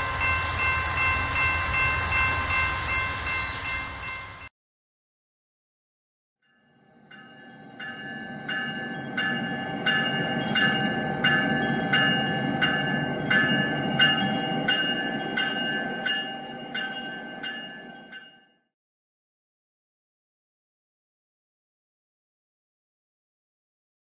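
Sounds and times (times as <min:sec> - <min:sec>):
locomotive bell ringing: 0:00.0 - 0:04.5, 0:06.5 - 0:18.7
train rumbling: 0:00.0 - 0:04.5, 0:07.2 - 0:18.2.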